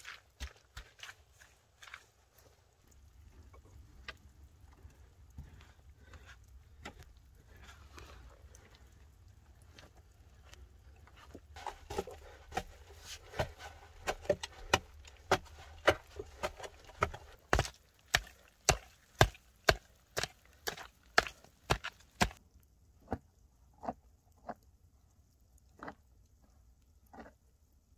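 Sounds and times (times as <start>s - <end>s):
pick striking stony earth: 11.6s - 22.4s.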